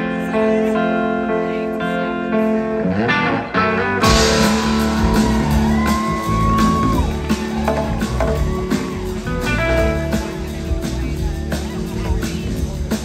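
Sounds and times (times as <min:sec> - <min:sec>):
electric guitar lead line: 0:00.0 - 0:13.0
guitar and keyboard chords: 0:00.0 - 0:13.0
drums: 0:03.8 - 0:13.0.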